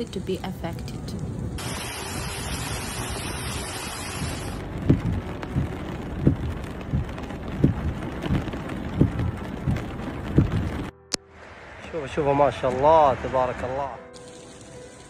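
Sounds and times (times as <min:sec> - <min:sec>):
heavy rain: 0:01.1 - 0:13.6
rushing floodwater: 0:01.6 - 0:10.9
low dull thumps: 0:04.6 - 0:10.9.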